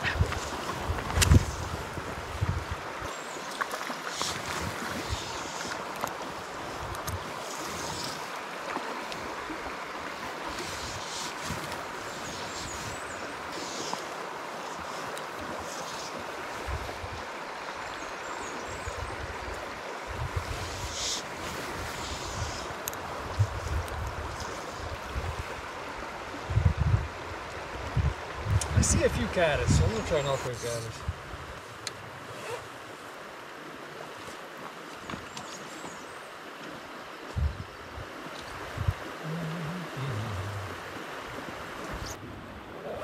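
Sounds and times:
wind buffeting microphone: 0.0s - 2.9s, 26.5s - 27.2s
stream rushing water: 0.0s - 43.0s.

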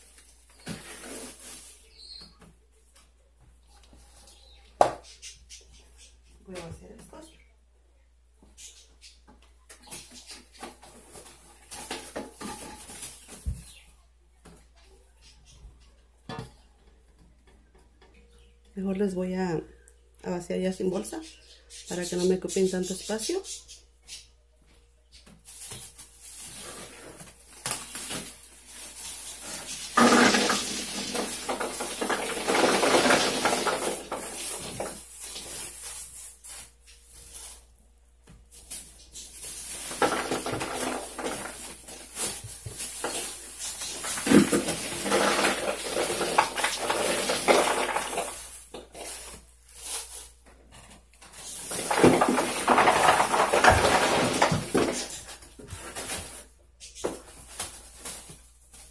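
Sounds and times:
plastic bags rustling: 0.0s - 2.4s, 9.9s - 13.9s, 25.4s - 37.8s, 38.4s - 58.9s.

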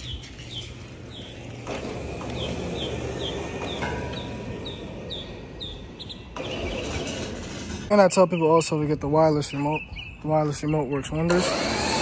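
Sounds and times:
faint winch whine: 11.2s - 12.0s
winch droning: 11.3s - 12.0s.

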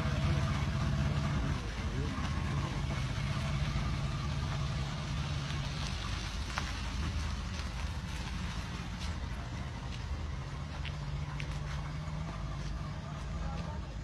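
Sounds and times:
faint voices: 0.0s - 5.0s, 9.0s - 14.0s
vehicle engine idling: 0.0s - 14.0s.

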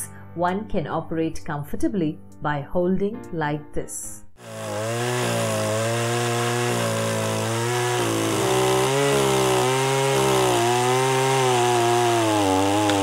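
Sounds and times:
chain sawing through branch: 4.4s - 13.0s
pole pruner engine running: 4.4s - 13.0s.

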